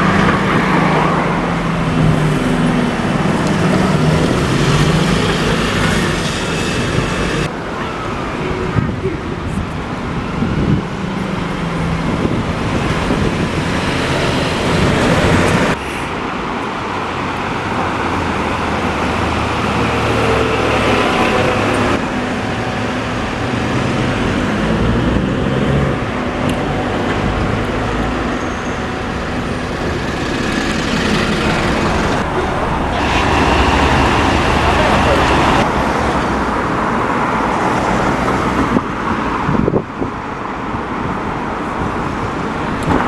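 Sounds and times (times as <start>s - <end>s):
cars driving by: 0.0s - 43.0s
bus driving past: 9.3s - 43.0s.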